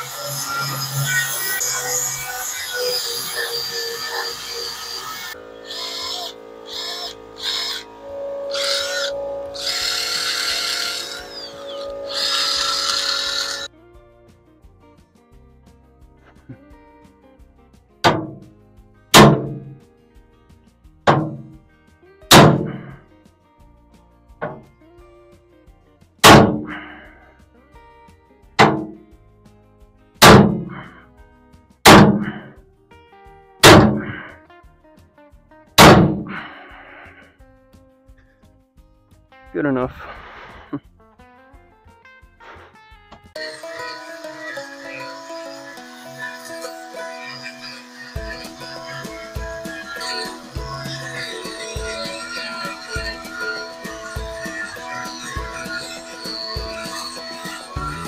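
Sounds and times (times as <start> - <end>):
drill wire brush scouring steel: 0.0 - 13.7, 30.2 - 31.0, 43.4 - 58.0
background music: 0.0 - 40.0, 40.8 - 58.0
sledgehammer clanging on steel: 19.2 - 19.7, 21.1 - 21.5, 22.3 - 22.9, 26.2 - 26.7, 28.6 - 29.0, 30.2 - 30.9, 31.9 - 32.5, 33.6 - 34.2.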